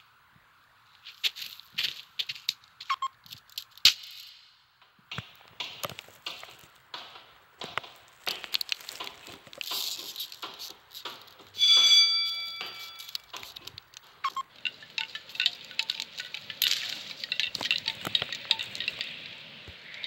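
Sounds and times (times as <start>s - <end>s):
bright chime: 11.6s - 13.3s.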